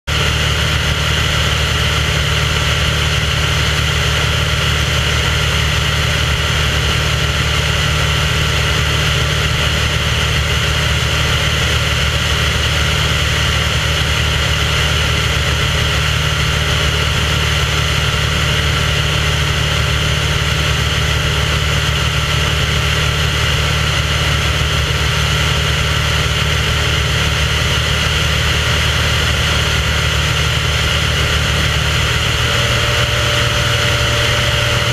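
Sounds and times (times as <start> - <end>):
aircraft engine drone: 0.1 - 34.9.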